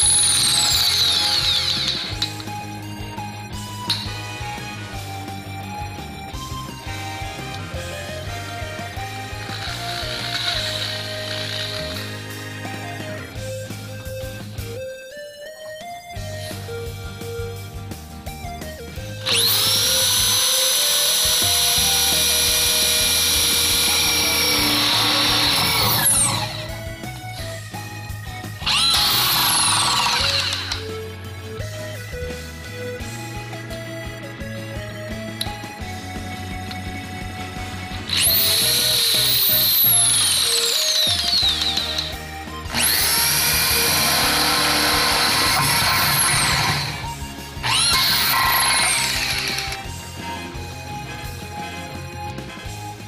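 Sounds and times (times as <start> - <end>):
power drill whining: 0.0 - 14.5, 18.9 - 31.8, 33.0 - 50.3
background music: 0.0 - 53.0.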